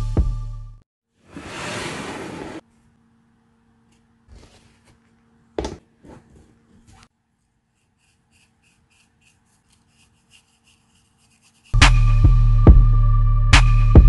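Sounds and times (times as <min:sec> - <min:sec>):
brush dabbing scratchy strokes: 0:07.2 - 0:12.0.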